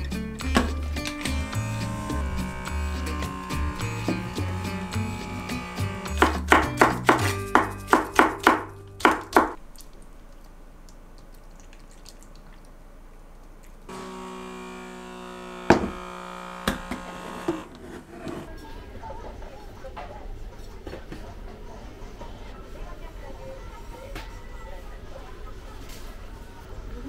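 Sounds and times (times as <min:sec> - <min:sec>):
light instrumental music: 0:00.0 - 0:09.6
sharp taps or knocks: 0:06.2 - 0:09.6.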